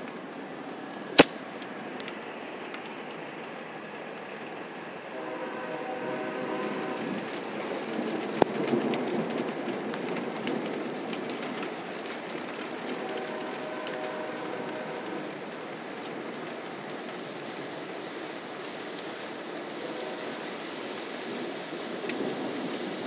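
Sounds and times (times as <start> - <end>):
rain falling: 0.0 - 23.0
faint droning horn-like tone: 5.1 - 7.2, 12.9 - 15.4, 19.7 - 20.6.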